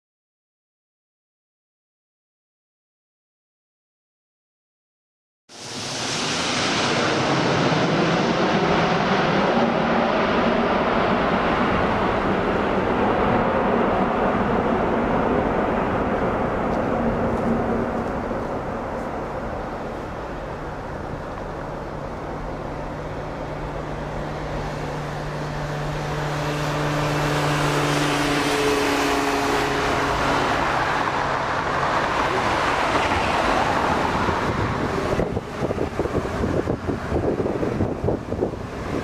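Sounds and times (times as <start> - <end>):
jet airliner landing roar: 5.5 - 39.0
wind buffeting microphone: 31.0 - 39.0.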